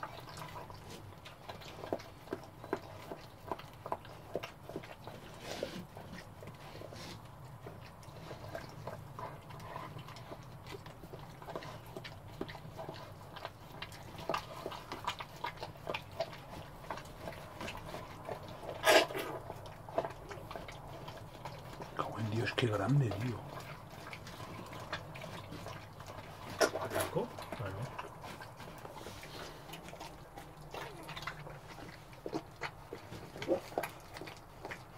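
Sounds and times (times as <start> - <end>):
dog licking wet smacking: 7.2 - 34.9.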